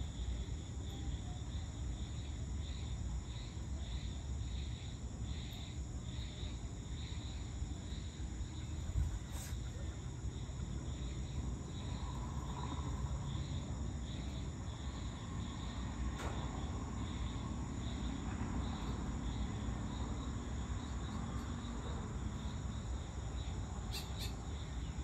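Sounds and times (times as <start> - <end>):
insects chirring: 0.0 - 25.0.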